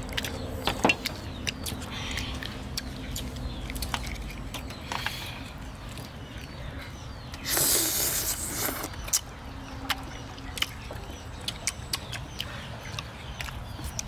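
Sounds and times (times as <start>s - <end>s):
sharp clicks of eating: 0.0s - 14.0s
loud slurp: 7.4s - 9.0s.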